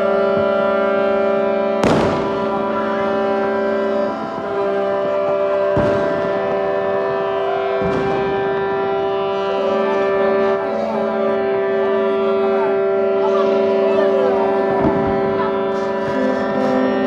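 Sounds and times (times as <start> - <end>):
boat horns blaring together: 0.0 - 17.0
firework bangs: 1.7 - 9.2, 14.7 - 16.6.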